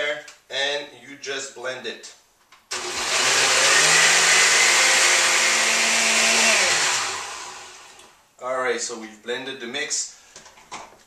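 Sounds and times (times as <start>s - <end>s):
blender running: 2.7s - 8.2s.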